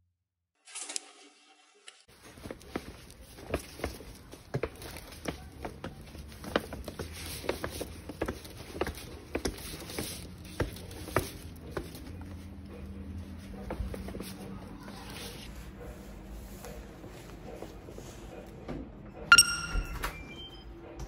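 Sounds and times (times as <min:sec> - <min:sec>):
footsteps on wet stone floor: 0:02.1 - 0:15.6.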